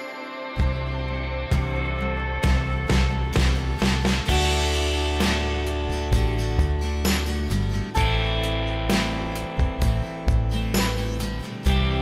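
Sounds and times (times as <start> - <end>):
instrumental music with struck notes: 0.0 - 12.0.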